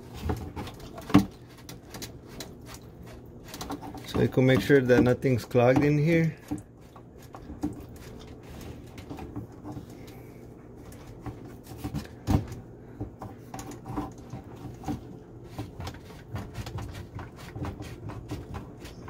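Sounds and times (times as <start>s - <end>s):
plastic pipe fittings clicking and knocking: 10.9s - 18.9s.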